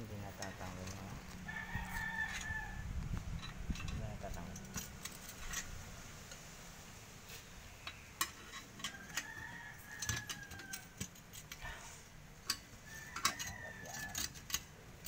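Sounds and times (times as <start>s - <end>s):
distant rooster crowing: 1.3s - 3.0s, 8.8s - 11.8s, 12.7s - 14.6s
metal parts clinking: 3.4s - 5.7s, 7.8s - 11.7s.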